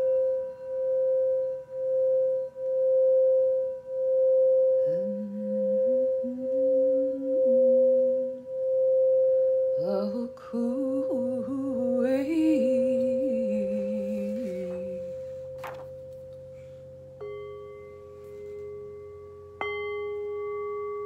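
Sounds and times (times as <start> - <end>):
singing bowl ringing: 0.0 - 21.0
woman humming: 4.8 - 8.4, 9.8 - 15.4
singing bowl struck with mallet: 17.2 - 21.0.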